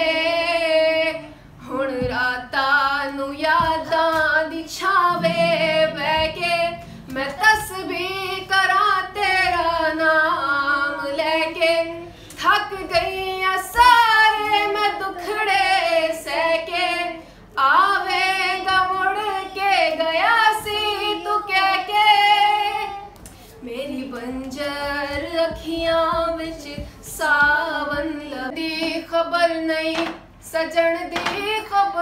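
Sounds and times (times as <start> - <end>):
girl singing slow song: 0.0 - 32.0
singer breaths: 12.1 - 12.4.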